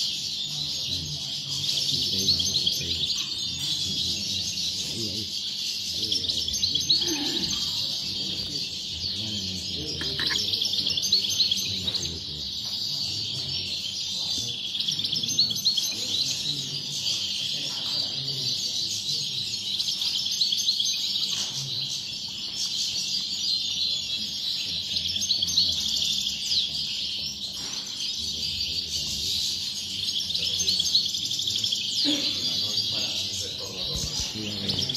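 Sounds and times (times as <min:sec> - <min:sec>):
goldfinches twittering: 0:00.0 - 0:34.9.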